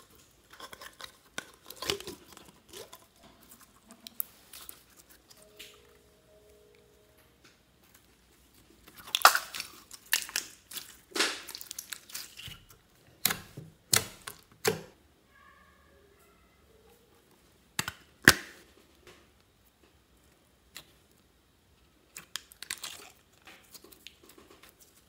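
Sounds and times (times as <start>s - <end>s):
slime squelching: 0.0s - 6.2s, 7.9s - 15.0s, 22.1s - 25.0s.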